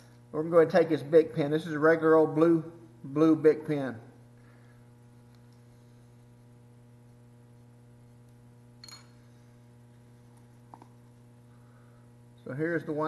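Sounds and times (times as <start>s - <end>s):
low electrical hum: 0.0s - 13.0s
brief metallic ring: 8.8s - 9.3s.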